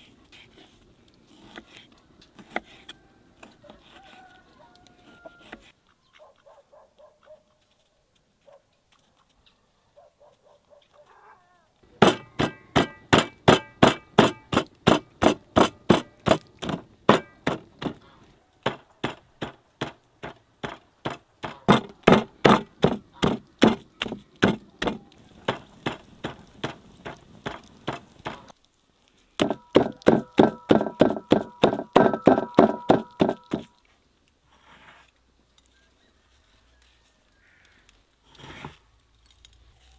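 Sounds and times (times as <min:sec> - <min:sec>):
cleaver chopping meat on wood: 0:12.0 - 0:18.0, 0:18.6 - 0:28.5, 0:29.4 - 0:33.7.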